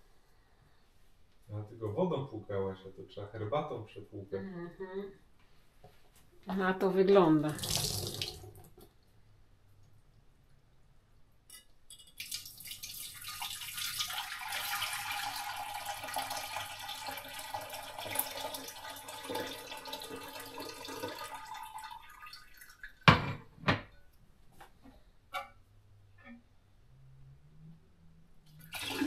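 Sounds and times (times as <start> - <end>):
liquid pouring and splashing: 7.5 - 8.8, 12.0 - 23.1, 28.5 - 29.0.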